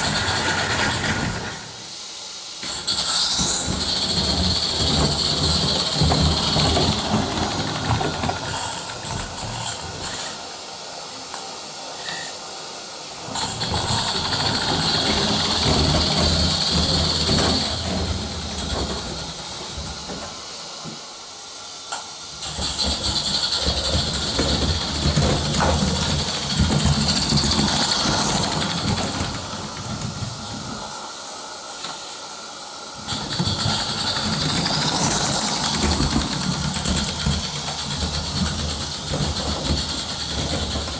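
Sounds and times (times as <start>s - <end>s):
model train wheels rumbling on rails: 0.0s - 40.9s
steam hissing: 0.0s - 40.9s.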